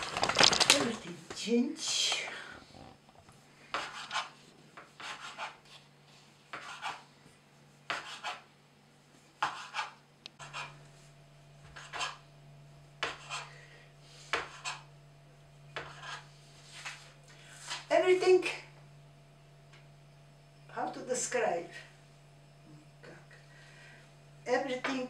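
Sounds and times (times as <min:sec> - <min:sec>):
knife cutting dough on board: 0:03.7 - 0:05.9, 0:06.5 - 0:07.0, 0:07.9 - 0:08.4, 0:09.4 - 0:10.7, 0:11.7 - 0:12.2, 0:13.0 - 0:13.5, 0:14.2 - 0:14.9, 0:15.8 - 0:17.9.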